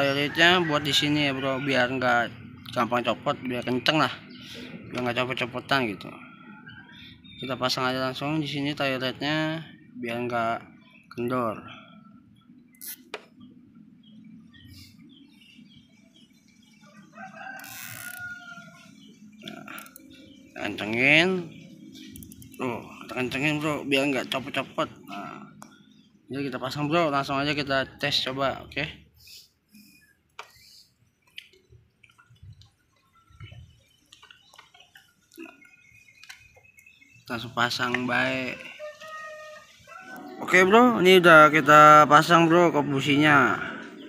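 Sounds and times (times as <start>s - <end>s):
rooster crowing: 0.0s - 2.1s, 16.9s - 18.9s, 38.4s - 41.0s
small clicks and taps: 31.2s - 35.5s.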